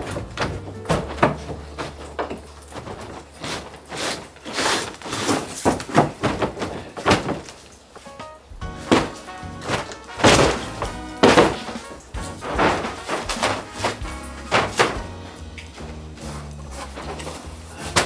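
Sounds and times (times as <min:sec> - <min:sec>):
sliding door knocking and rattling: 0:00.0 - 0:03.3
sliding door scraping: 0:00.0 - 0:05.9, 0:08.7 - 0:18.0.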